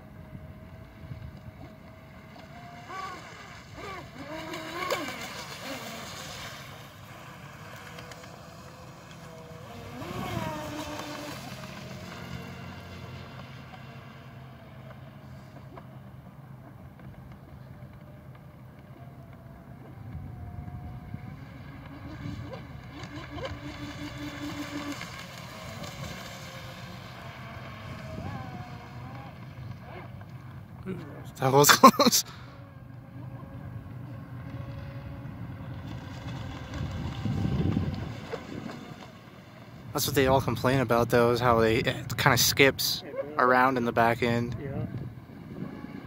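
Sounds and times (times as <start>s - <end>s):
electric motor whining: 0.1s - 15.9s, 17.6s - 30.3s, 32.6s - 39.0s.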